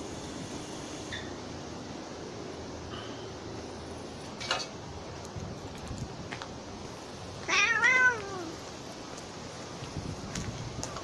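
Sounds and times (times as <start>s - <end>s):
kitten crying: 7.5s - 8.5s.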